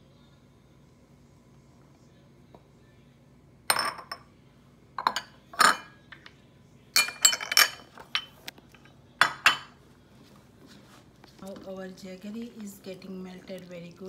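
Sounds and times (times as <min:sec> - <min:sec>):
glass dishes clinking: 0:03.7 - 0:04.3, 0:05.0 - 0:06.0, 0:07.0 - 0:09.8.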